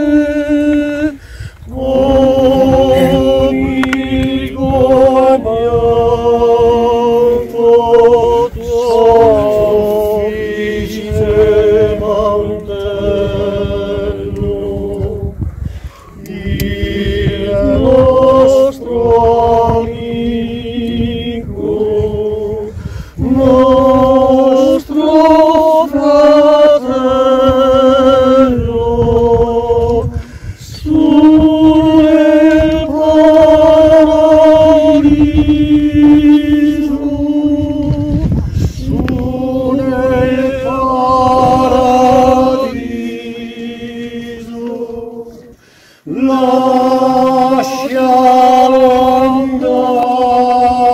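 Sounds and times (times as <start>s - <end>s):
group of voices singing unaccompanied: 0.0s - 50.9s.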